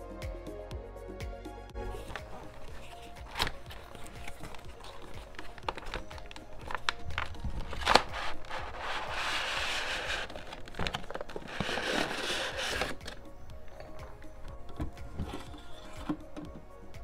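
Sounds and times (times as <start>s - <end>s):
background music: 0.0s - 17.0s
plastic rubbing against cardboard: 1.8s - 14.2s
box opening clicks: 2.0s - 8.5s, 10.3s - 16.6s.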